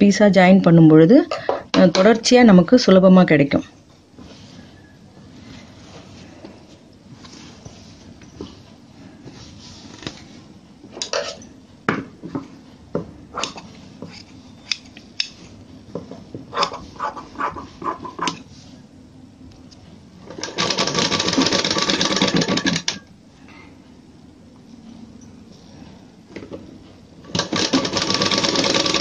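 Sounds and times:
sewing machine running: 0:20.3 - 0:23.0, 0:27.3 - 0:29.0.

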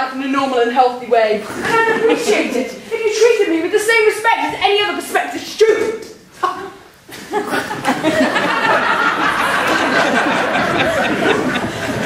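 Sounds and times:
audience laughing: 0:07.1 - 0:12.0.

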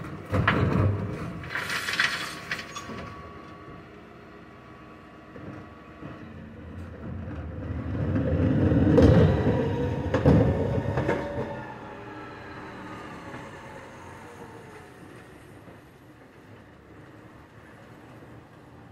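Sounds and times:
hydraulic lift whine: 0:05.3 - 0:15.0.

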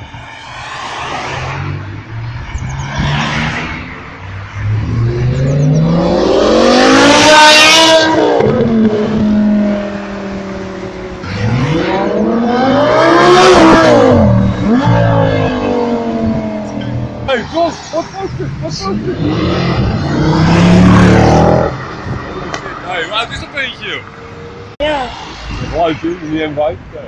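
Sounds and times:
second car engine revving: 0:01.4 - 0:17.3, 0:18.6 - 0:22.7
car engine accelerating past: 0:19.1 - 0:21.8.

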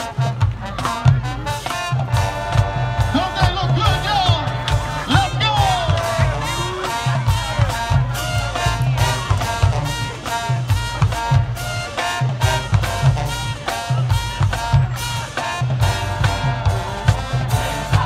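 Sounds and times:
brass chords: 0:00.0 - 0:18.0
drums: 0:00.0 - 0:18.0
sousaphone bass line: 0:02.2 - 0:11.6.

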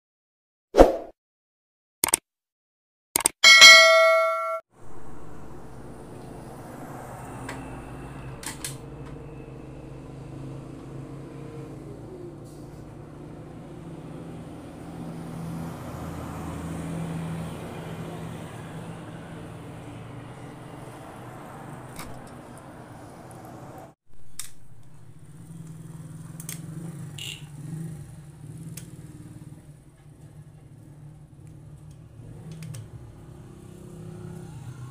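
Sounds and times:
sharp metallic clicks: 0:02.0 - 0:02.2, 0:03.2 - 0:04.6
short ringing chime: 0:03.4 - 0:04.6.

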